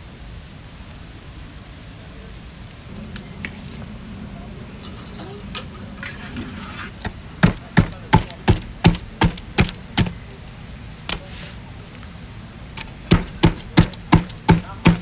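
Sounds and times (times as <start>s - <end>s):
cleaver chopping on wooden board: 7.0s - 10.2s, 13.1s - 15.0s.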